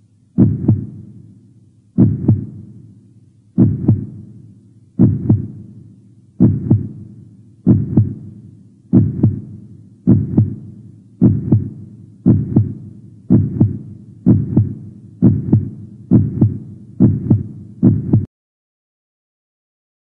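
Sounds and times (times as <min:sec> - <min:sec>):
heartbeat thumps: 0:00.4 - 0:01.1, 0:02.0 - 0:02.7, 0:03.6 - 0:04.3, 0:05.0 - 0:05.6, 0:06.4 - 0:08.3, 0:08.9 - 0:18.3.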